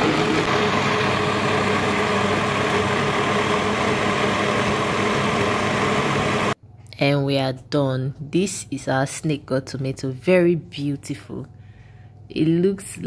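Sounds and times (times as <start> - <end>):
blender motor humming: 0.0 - 6.6.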